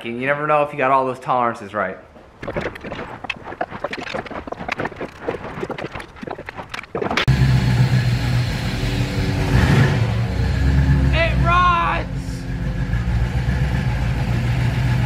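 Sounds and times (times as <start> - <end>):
engine idling: 7.3 - 15.0.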